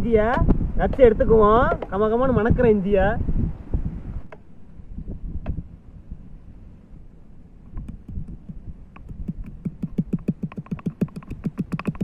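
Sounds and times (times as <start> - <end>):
pestle pounding in stone mortar: 7.9 - 12.0.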